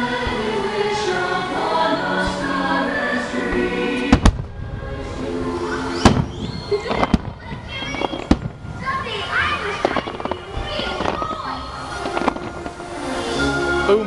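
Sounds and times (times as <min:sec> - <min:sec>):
music with singing: 0:00.0 - 0:06.9, 0:11.0 - 0:14.0
fireworks bursting: 0:00.0 - 0:13.7.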